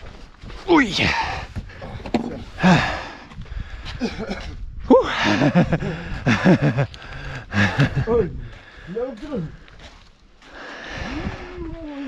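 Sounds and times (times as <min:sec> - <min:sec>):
rustling and scuffing: 0:00.0 - 0:02.6, 0:08.5 - 0:10.6.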